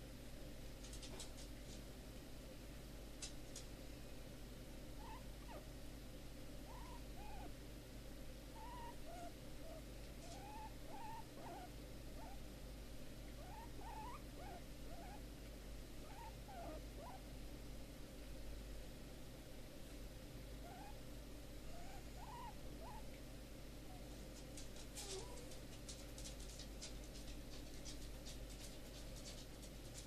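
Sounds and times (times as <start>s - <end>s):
guinea pig squeaking softly: 5.0s - 5.7s, 6.6s - 7.6s, 8.5s - 12.5s, 13.2s - 15.3s, 16.0s - 17.3s, 20.6s - 21.0s, 21.6s - 23.2s, 23.8s - 30.0s.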